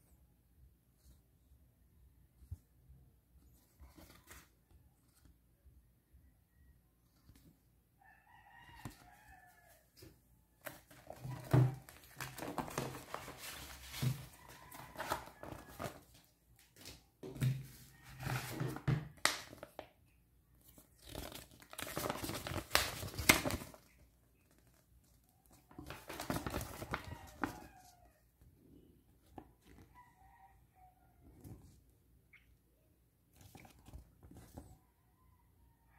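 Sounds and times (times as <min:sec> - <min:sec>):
packaging crinkling and rustling: 0:10.6 - 0:16.2, 0:21.0 - 0:23.9, 0:25.7 - 0:27.7.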